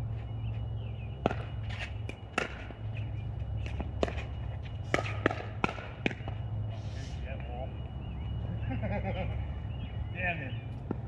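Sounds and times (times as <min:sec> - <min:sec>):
steady low rumble: 0:00.0 - 0:11.0
paddles hitting plastic ball: 0:01.2 - 0:02.7, 0:04.9 - 0:06.4
ball bouncing on court: 0:01.2 - 0:02.8, 0:03.6 - 0:04.3, 0:04.9 - 0:06.4, 0:10.8 - 0:11.0.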